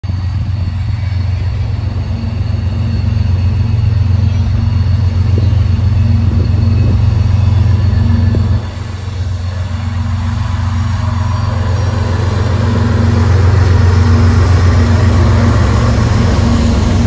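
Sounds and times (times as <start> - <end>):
diesel locomotive engine drone: 0.0 - 17.0.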